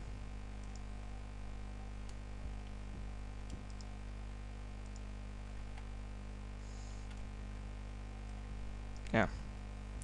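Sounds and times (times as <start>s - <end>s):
low electrical hum: 0.0s - 10.0s
keyboard and mouse clicks: 0.6s - 0.9s, 3.4s - 3.9s, 4.8s - 5.1s.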